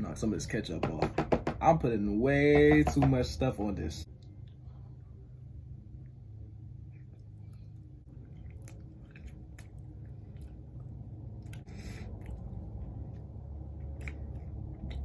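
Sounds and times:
chewing with wet mouth clicks: 7.0 - 15.0.

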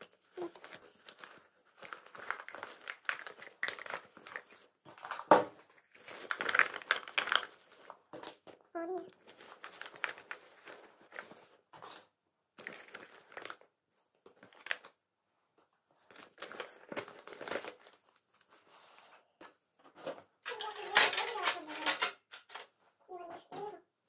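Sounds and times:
rustling of fabric and plastic: 0.0 - 19.1, 19.9 - 23.9.

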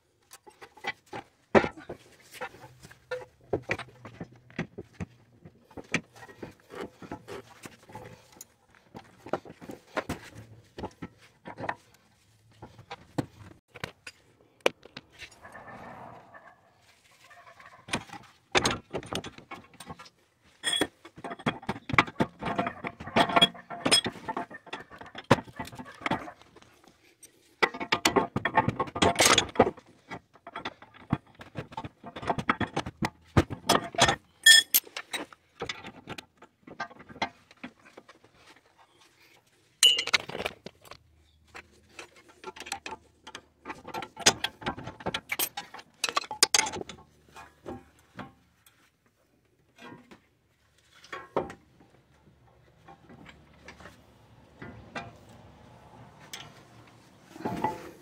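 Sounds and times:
hand tools clinking and clicking: 20.6 - 26.2, 33.7 - 35.3, 39.8 - 41.0, 41.9 - 48.3.

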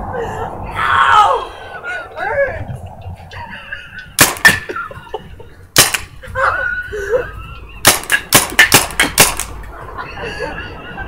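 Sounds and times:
person laughing: 1.4 - 7.9, 9.8 - 11.0
paintball gun firing: 4.2 - 4.6, 5.8 - 6.1, 7.8 - 9.6.

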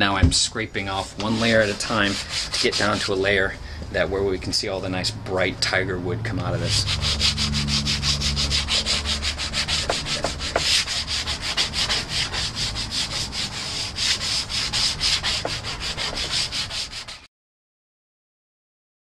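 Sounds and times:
hand scraper rasping on wood: 0.9 - 3.4, 6.4 - 17.3.

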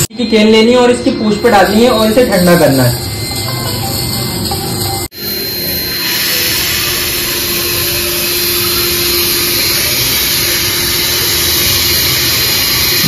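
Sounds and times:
aerosol spray hissing: 6.0 - 13.0.

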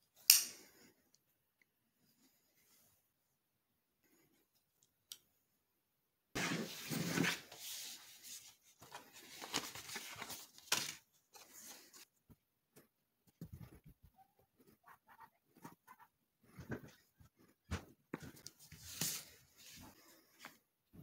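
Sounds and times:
card pieces rustling and sliding: 6.4 - 12.1, 18.2 - 20.5.

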